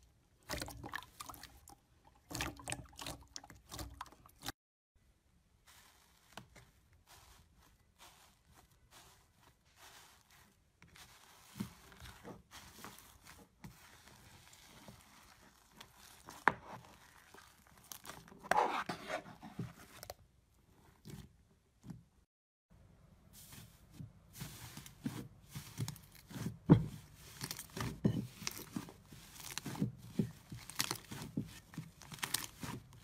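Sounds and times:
slime crackling and popping: 27.3s - 33.0s.

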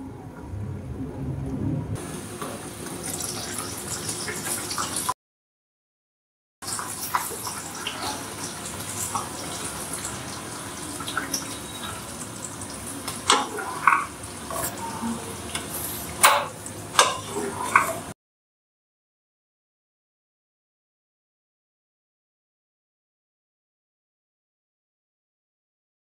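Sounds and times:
sauce sizzling in a pan: 6.6s - 18.1s.

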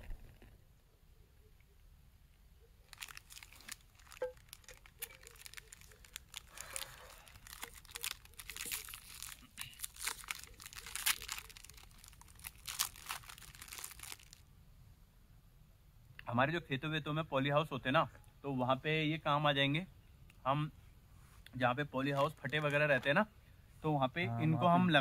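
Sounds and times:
sharp crinkling and crackling: 2.7s - 14.5s, 22.0s - 23.1s.

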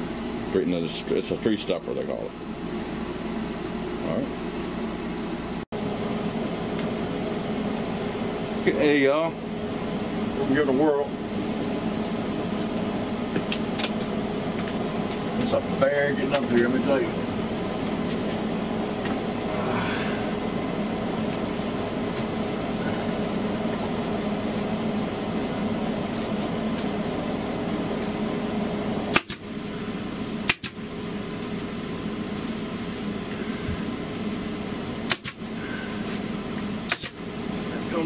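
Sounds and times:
air conditioner hum: 0.0s - 38.0s
pneumatic stapler shots: 29.1s - 29.4s, 30.4s - 30.8s, 35.0s - 35.4s, 36.9s - 37.2s.

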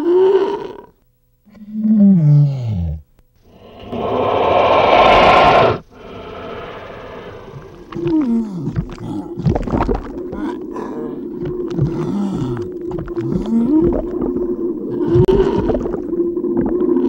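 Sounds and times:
steady low underwater tone: 0.0s - 17.0s
whale-like gliding calls: 3.5s - 8.4s, 10.0s - 17.0s.

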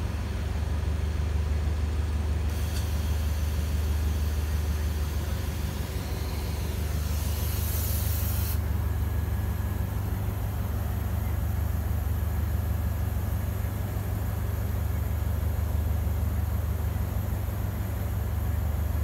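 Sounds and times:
hiss: 2.5s - 6.1s, 6.8s - 8.7s.

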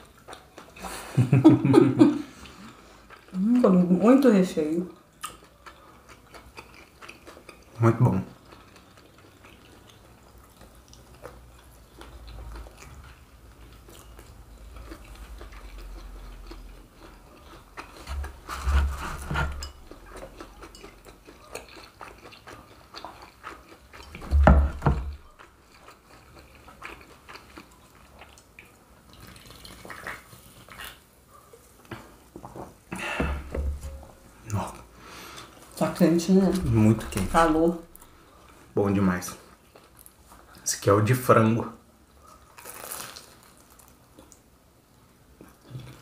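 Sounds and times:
people chewing: 0.0s - 4.3s, 4.9s - 40.7s, 42.1s - 46.0s
fried crust crunching: 5.2s - 31.1s, 42.3s - 44.4s.

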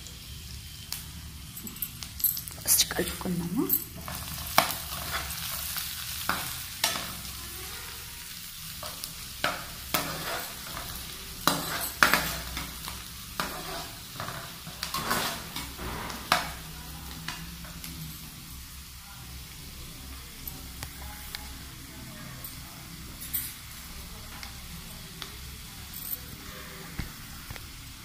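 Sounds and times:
onions sizzling in hot oil: 0.0s - 28.0s
steel spoon scraping pan: 4.0s - 7.2s, 8.8s - 18.2s.

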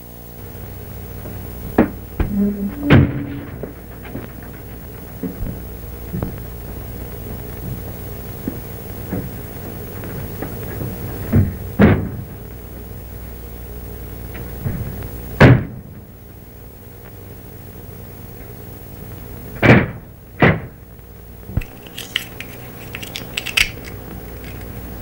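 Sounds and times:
film soundtrack hum and hiss: 0.0s - 25.0s
loud thumps: 1.7s - 6.4s.

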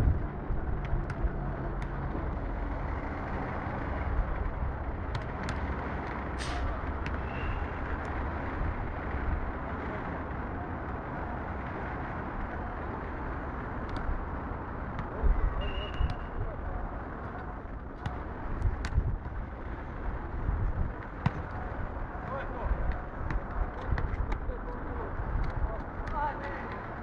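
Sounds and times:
low outdoor rumble: 0.0s - 27.0s
football kicks and bounces: 0.6s - 2.4s, 5.0s - 5.7s, 13.8s - 14.2s, 14.9s - 16.5s, 17.1s - 19.9s, 20.5s - 27.0s.

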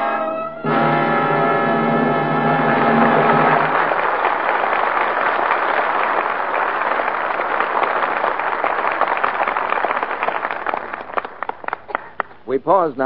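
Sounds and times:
orchestra closing chord: 0.0s - 4.5s
audience applauding: 1.9s - 12.4s.

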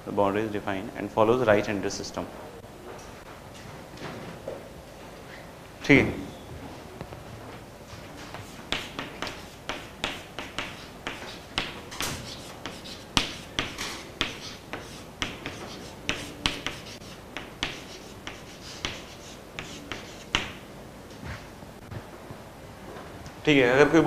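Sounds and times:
chalk tapping and scratching on chalkboard: 8.2s - 20.6s.

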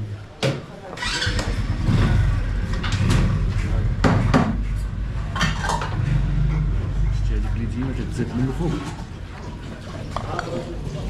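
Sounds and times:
low rumble: 1.4s - 9.4s.

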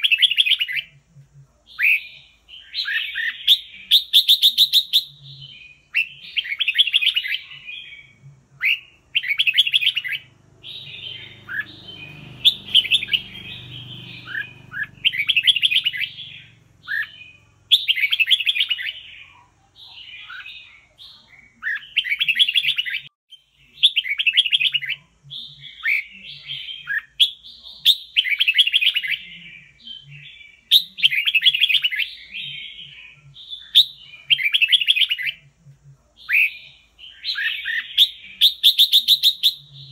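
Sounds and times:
bird singing whistled phrases: 1.8s - 19.3s, 36.2s - 39.9s.

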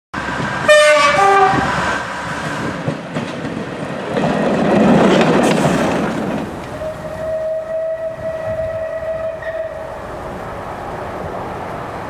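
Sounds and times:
train running noise: 0.2s - 12.0s
train two-tone horn: 0.6s - 1.8s, 6.7s - 10.2s.

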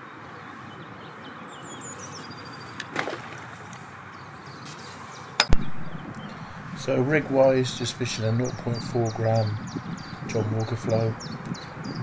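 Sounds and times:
breeze over open water: 0.0s - 12.0s
sharp knock: 5.4s - 6.0s.

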